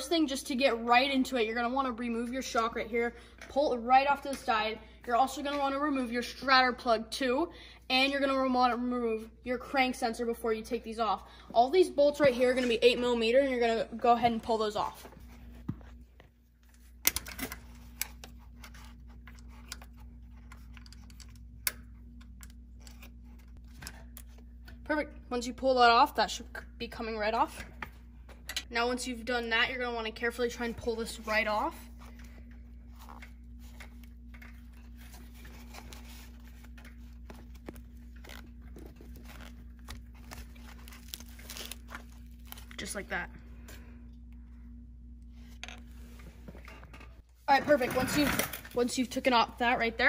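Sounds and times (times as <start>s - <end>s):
steady low hum: 0.0s - 50.0s
foil crinkling and rustling: 35.5s - 42.9s.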